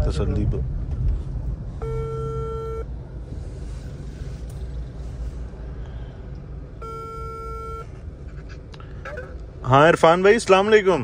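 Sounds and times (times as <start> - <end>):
car engine running: 0.0 - 10.3
phone ringback tone: 1.8 - 2.8, 6.8 - 7.9.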